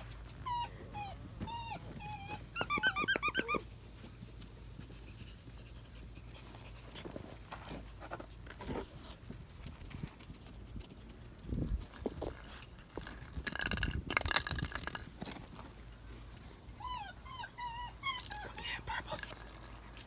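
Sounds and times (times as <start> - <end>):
puppies scuffling and chewing: 0.0 - 20.0
puppy yelping: 0.4 - 3.7, 16.8 - 19.4.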